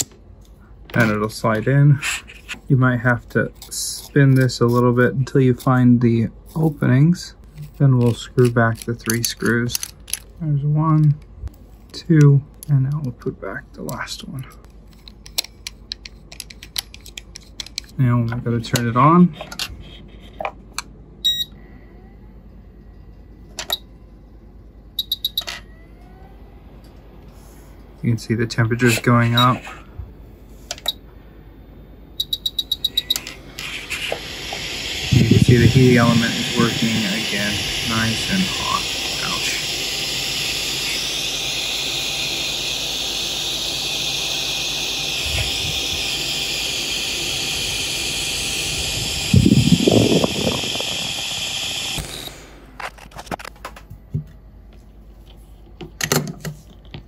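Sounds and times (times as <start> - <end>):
hot air station whine: 0.0 - 56.8
low steady hum: 0.0 - 57.0
hot air blower hissing: 32.9 - 52.8.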